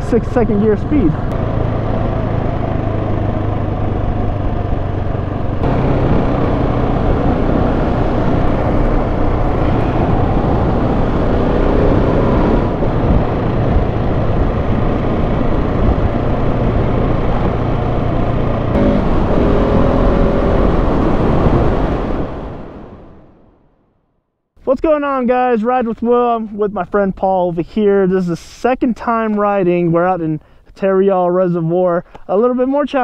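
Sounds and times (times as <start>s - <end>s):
motorcycle engine running: 0.0s - 21.4s
wind noise on microphone: 0.0s - 23.4s.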